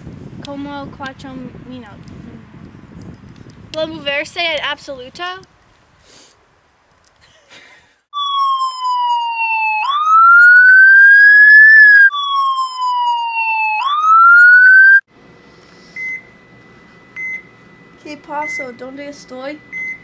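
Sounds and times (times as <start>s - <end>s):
emergency vehicle siren wailing: 8.2s - 15.1s.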